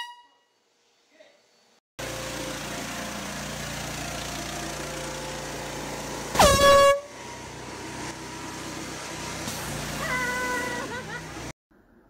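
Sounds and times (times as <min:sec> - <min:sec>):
air horn blast: 0:00.0 - 0:00.5, 0:06.3 - 0:07.3
pressure washer hissing: 0:02.0 - 0:11.5.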